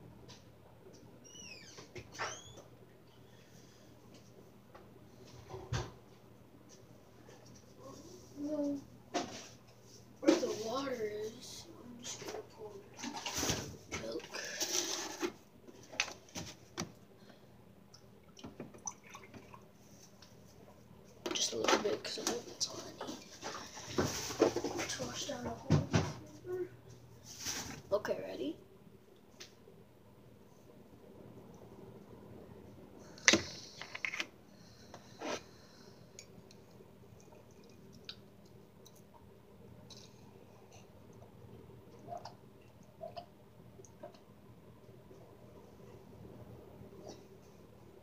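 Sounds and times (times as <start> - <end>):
plastic rustle: 13.0 - 16.7, 22.5 - 25.3, 27.2 - 27.9.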